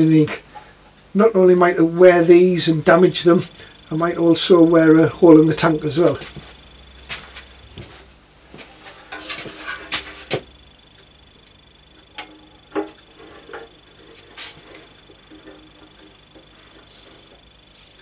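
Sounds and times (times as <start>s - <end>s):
metal knocks and clatters: 8.9s - 10.4s.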